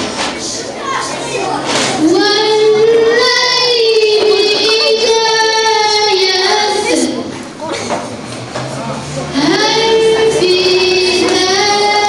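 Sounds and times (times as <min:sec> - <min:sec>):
child singing a long note: 0:02.0 - 0:07.1, 0:09.4 - 0:12.0.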